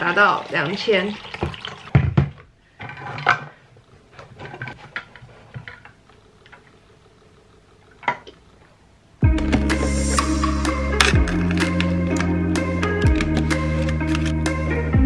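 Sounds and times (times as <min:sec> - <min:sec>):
background music: 0:09.2 - 0:15.0.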